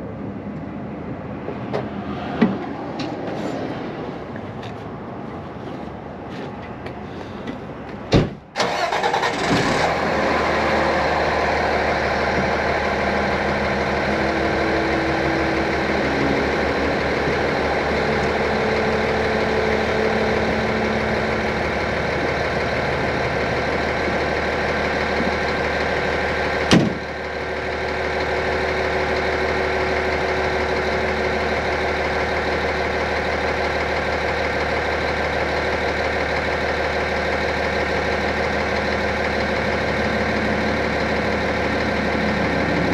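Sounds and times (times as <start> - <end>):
diesel engine running: 0.0 - 42.9
loud clunk: 26.7 - 27.0.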